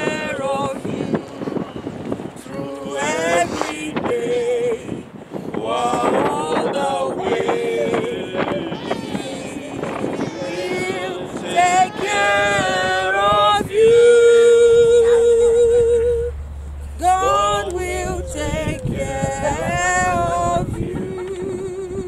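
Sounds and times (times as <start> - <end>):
group singing a hymn unaccompanied: 0.0 - 22.0
man singing: 5.6 - 16.3, 17.0 - 22.0
woman singing: 8.7 - 16.3, 17.0 - 22.0.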